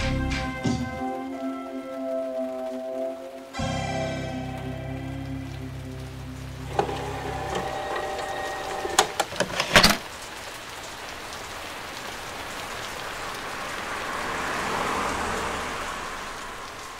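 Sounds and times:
background music: 0.0s - 9.5s
rain-like hiss: 0.0s - 16.9s.

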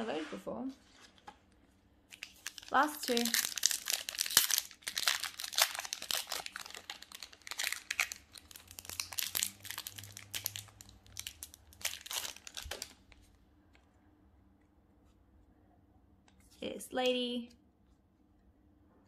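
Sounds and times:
foil wrapper crinkling and tearing: 2.1s - 13.2s.

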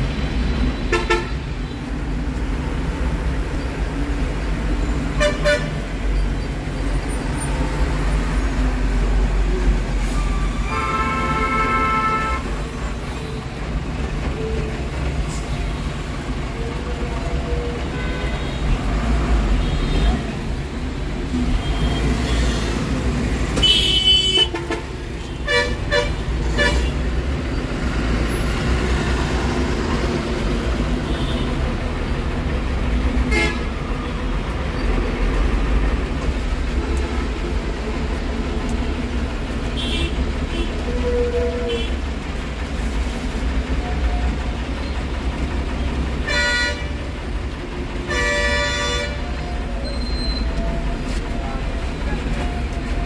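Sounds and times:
street traffic rumble: 0.0s - 53.0s
vehicle horn toots: 33.3s - 33.6s, 46.3s - 46.9s, 48.1s - 49.2s.

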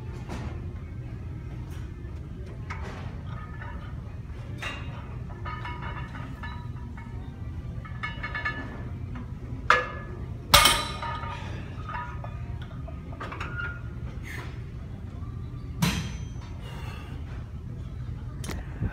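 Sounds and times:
weight plates clinking and ringing: 3.2s - 14.0s.

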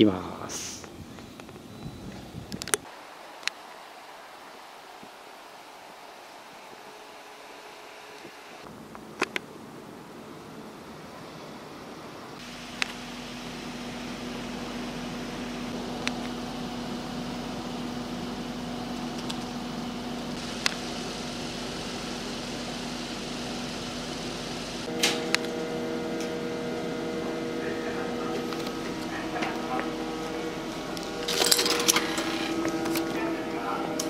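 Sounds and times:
machine hum: 12.2s - 34.0s.

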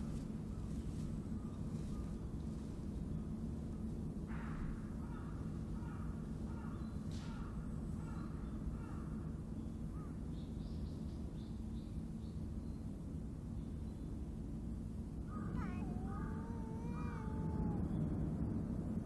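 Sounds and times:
low background rumble: 12.1s - 19.0s
crow cawing: 15.3s - 17.8s
small bird chirping: 15.3s - 18.6s.

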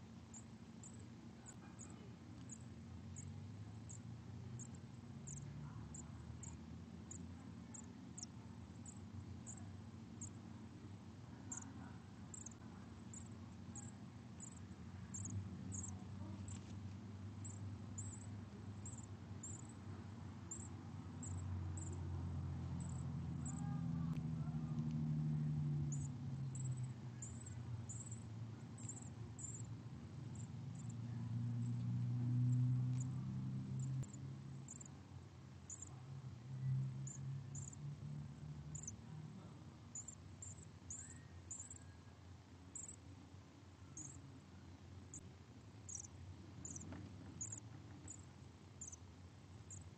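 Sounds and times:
nestlings cheeping: 11.4s - 16.7s.

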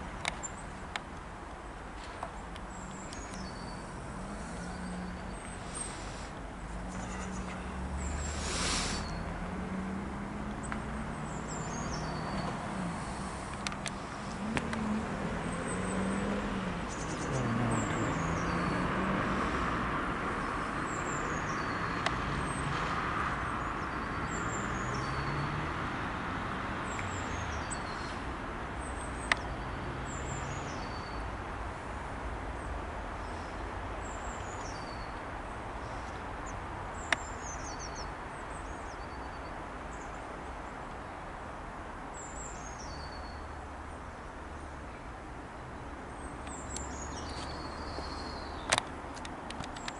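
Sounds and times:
small bird singing: 2.7s - 6.1s, 10.6s - 12.6s, 16.9s - 18.9s, 35.8s - 40.2s, 42.2s - 43.5s, 46.1s - 48.8s
sharp clicks: 48.6s - 49.9s.

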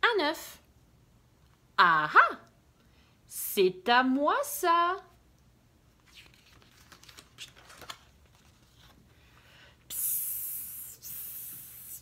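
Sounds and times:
paper rustling: 6.0s - 9.1s
page turning clicks: 6.1s - 8.9s
person hissing like a snake: 9.9s - 12.0s.

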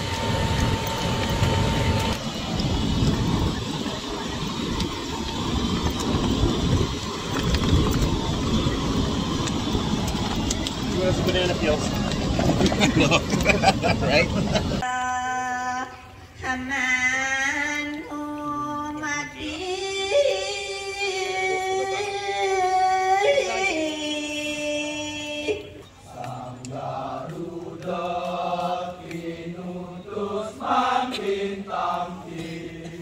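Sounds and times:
lower voice chanting: 14.8s - 33.0s.

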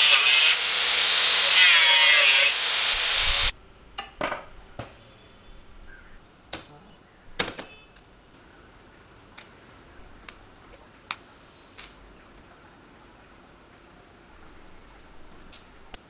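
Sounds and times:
angle grinder cutting steel: 0.0s - 3.5s.

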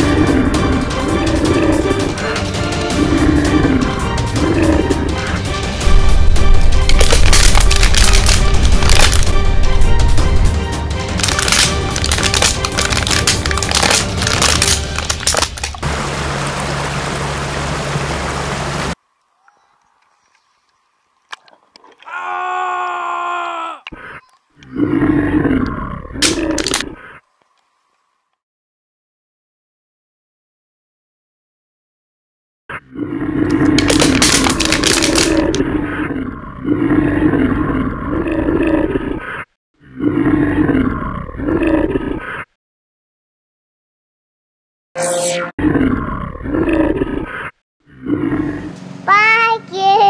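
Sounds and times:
growling roars: 0.0s - 2.2s, 2.8s - 5.4s, 24.6s - 27.0s, 32.7s - 42.5s, 45.6s - 48.8s
water splashing and rushing: 11.2s - 19.0s.

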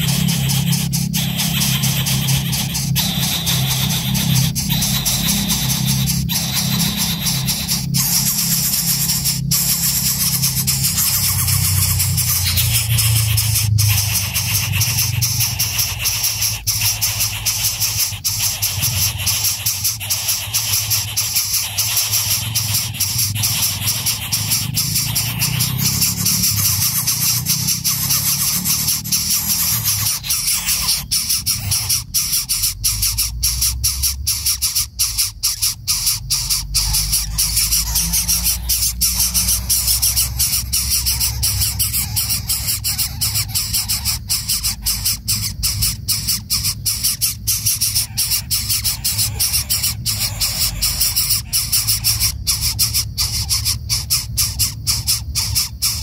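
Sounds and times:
bird chick squealing: 0.0s - 56.0s.

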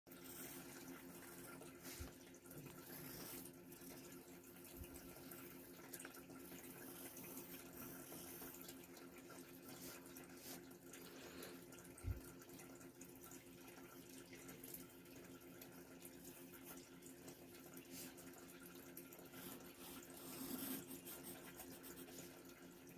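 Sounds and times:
pencil scratching on paper: 2.7s - 3.5s, 19.4s - 22.4s.

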